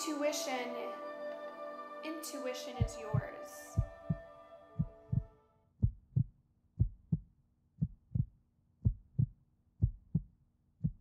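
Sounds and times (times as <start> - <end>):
heartbeat thumps: 2.8 - 11.0.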